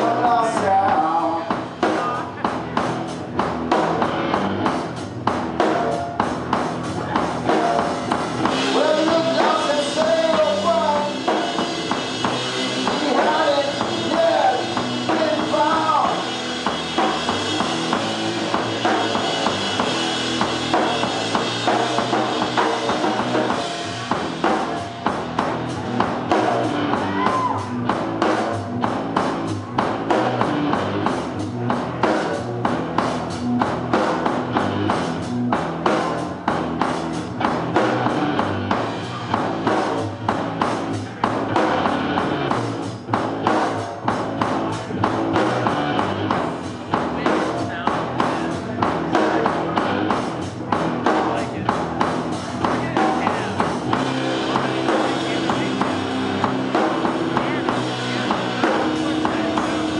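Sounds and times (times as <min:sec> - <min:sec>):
drum kit: 0:00.0 - 0:59.9
electric guitar through amplifier: 0:00.0 - 0:59.9.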